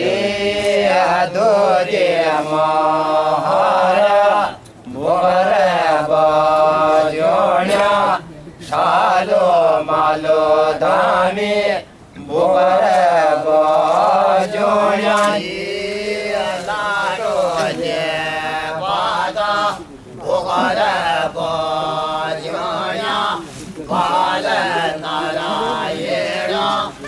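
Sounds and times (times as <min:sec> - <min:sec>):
person chanting: 0:08.8 - 0:27.0.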